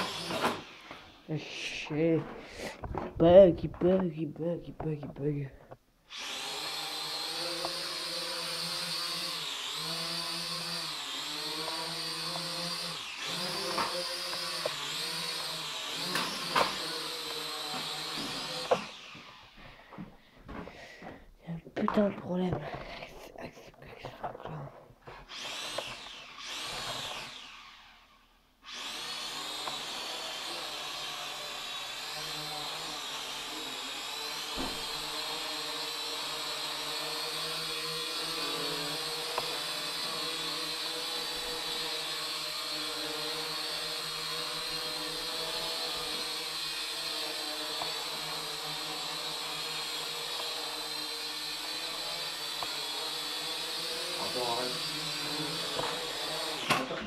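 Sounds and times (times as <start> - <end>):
toy drone rotors whining: 0.0 - 2.8, 6.1 - 19.8, 25.3 - 57.0.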